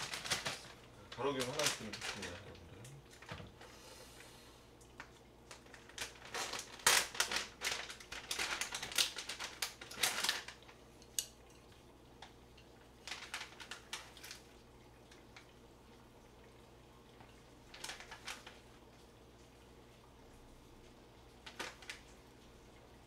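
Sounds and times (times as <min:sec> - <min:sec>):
crinkling and clattering: 0:00.0 - 0:03.7, 0:04.9 - 0:12.4, 0:13.0 - 0:15.5, 0:17.2 - 0:18.7, 0:21.4 - 0:22.2.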